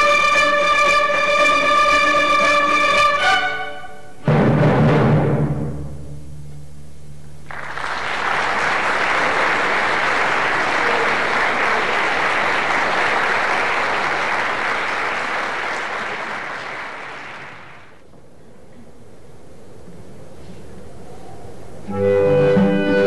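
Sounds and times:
audience applauding: 7.5s - 18.0s.

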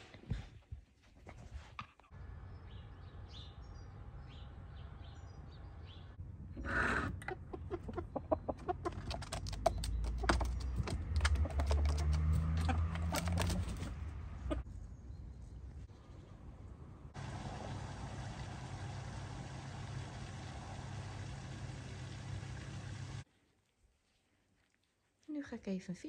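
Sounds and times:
faint birdsong: 1.9s - 17.1s
chickens clucking: 6.6s - 14.7s.

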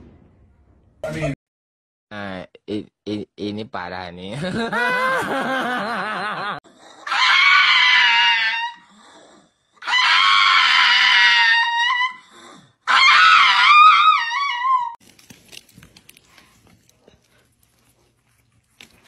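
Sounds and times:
dog howling: 7.0s - 9.0s, 9.8s - 12.3s, 12.9s - 15.0s.

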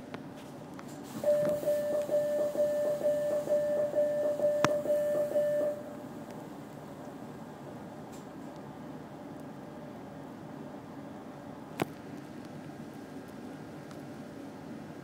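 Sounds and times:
train door warning beeps: 1.2s - 6.0s.

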